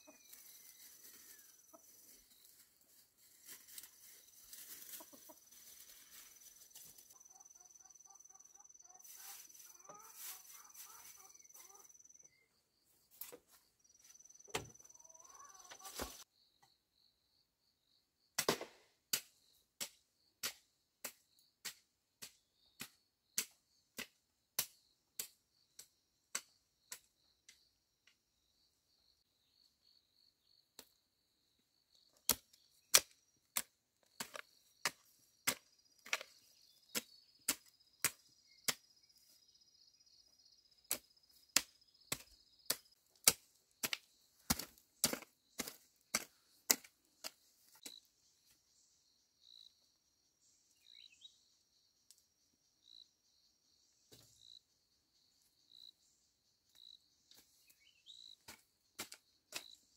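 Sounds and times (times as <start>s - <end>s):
insects trilling: 3.8s - 12.8s.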